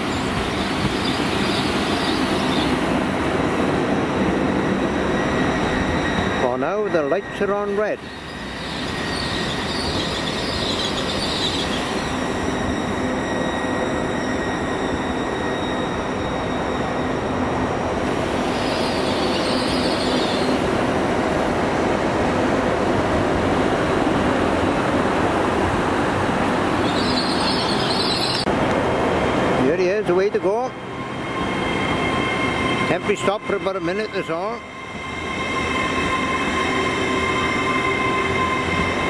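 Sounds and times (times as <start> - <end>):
high wheel squeals: 0.0 - 2.8, 4.5 - 20.7, 26.7 - 28.5, 29.6 - 39.0
train wheels rumbling on rail: 0.0 - 39.0.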